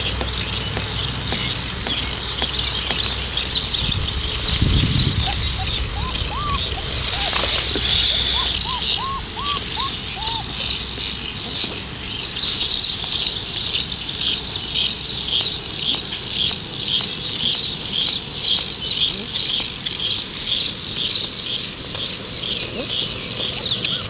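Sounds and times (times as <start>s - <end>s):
high pulsing chirring: 0.0s - 24.0s
puppies whimpering: 4.4s - 12.0s, 22.4s - 24.0s.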